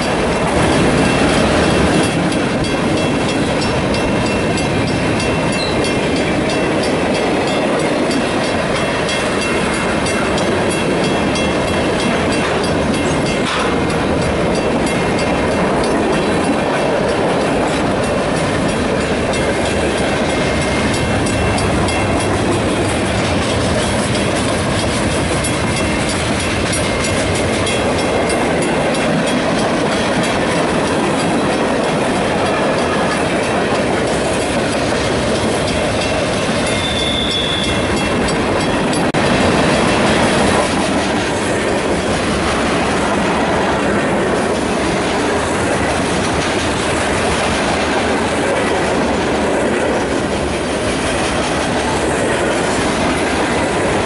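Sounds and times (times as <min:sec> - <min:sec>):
clicking over rail joints: 0:00.0 - 0:39.2
train wheels rumbling on rail: 0:00.0 - 0:54.0.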